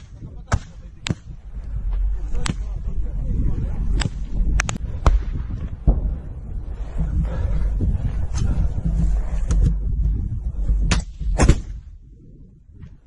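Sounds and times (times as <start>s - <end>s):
low rumble: 0.0s - 13.0s
gunshots: 10.9s - 11.8s.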